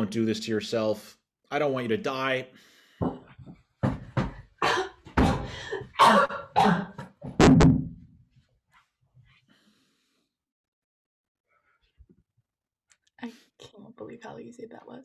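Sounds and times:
man coughing: 0:04.6 - 0:07.0.

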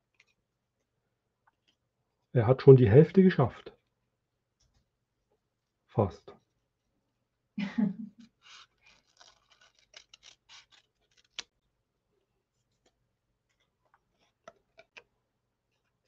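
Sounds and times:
scissors snipping paper: 0:08.4 - 0:11.5.

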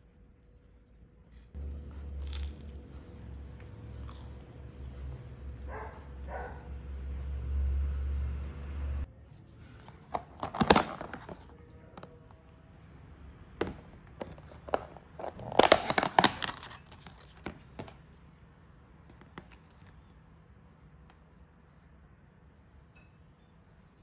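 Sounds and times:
plastic lid crackling and clicking: 0:10.1 - 0:11.4, 0:13.6 - 0:18.0.

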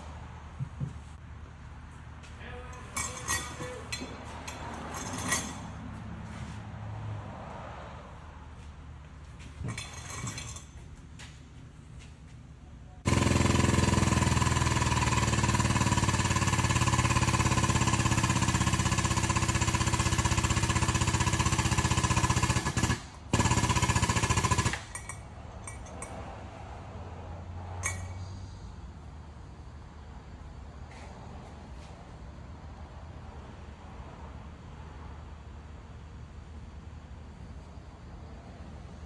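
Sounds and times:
hydraulic pump chattering: 0:02.8 - 0:05.7, 0:13.1 - 0:26.2.

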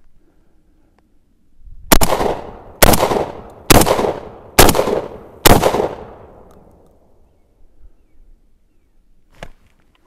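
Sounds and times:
shotgun shots with echo: 0:01.9 - 0:06.4.

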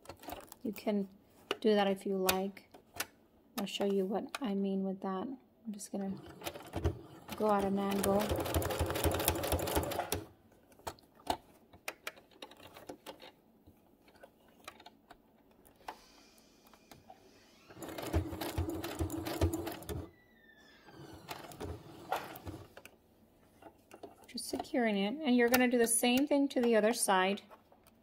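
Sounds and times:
sewing machine stitching: 0:06.1 - 0:10.3, 0:17.6 - 0:20.1, 0:20.9 - 0:22.8.

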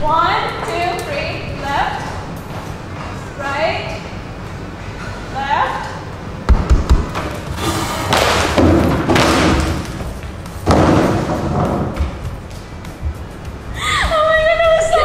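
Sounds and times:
heavy thumps: 0:06.5 - 0:13.5
music: 0:09.6 - 0:15.0.

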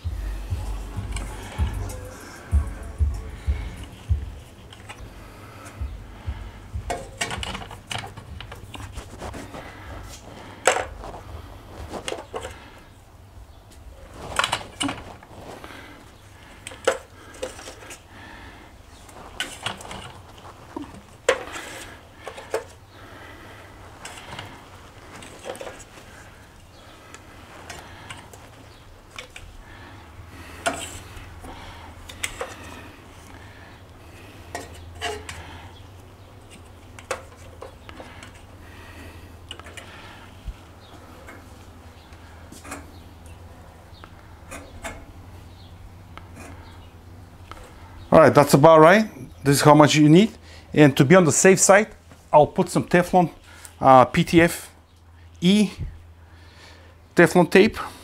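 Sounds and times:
pipe fittings clinking: 0:00.0 - 0:12.7, 0:16.5 - 0:18.0, 0:19.3 - 0:22.8, 0:30.5 - 0:33.4, 0:34.4 - 0:38.6
steady low hum: 0:00.0 - 0:58.0.

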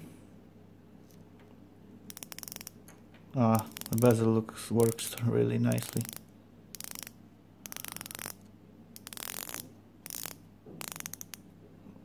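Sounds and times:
watch bezel ratcheting clicks: 0:02.1 - 0:02.8, 0:03.5 - 0:04.2, 0:04.8 - 0:08.4, 0:09.0 - 0:11.4.

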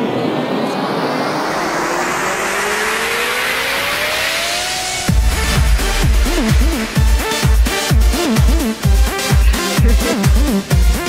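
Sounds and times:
tone gliding upward: 0:00.0 - 0:07.5
rising whooshing noise: 0:00.0 - 0:08.6.

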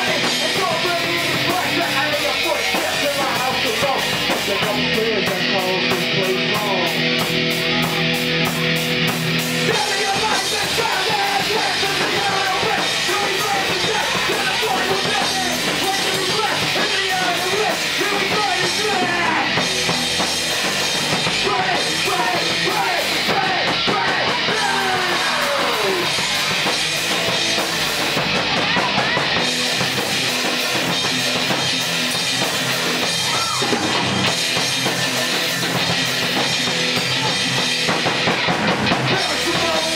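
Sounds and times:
singer's vocals: 0:00.0 - 0:07.0, 0:09.5 - 0:19.6, 0:21.2 - 0:26.7, 0:39.0 - 0:39.9
punk rock band playing: 0:00.0 - 0:39.9.

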